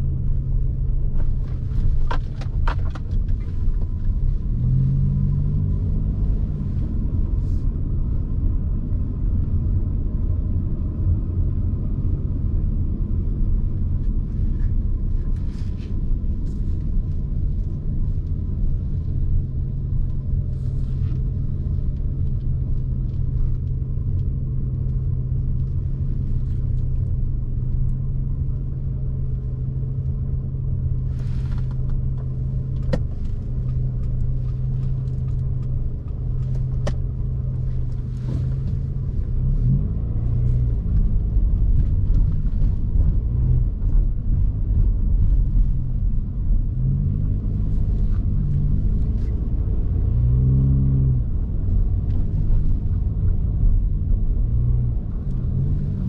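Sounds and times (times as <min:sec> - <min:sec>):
car engine hum: 0:00.0 - 0:56.0
road rumble: 0:00.0 - 0:56.0.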